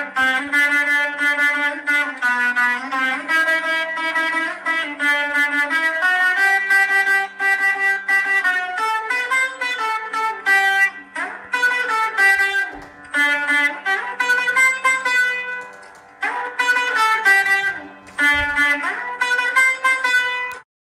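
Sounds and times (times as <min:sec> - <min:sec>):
plucked-string runs: 0:09.1 - 0:20.5.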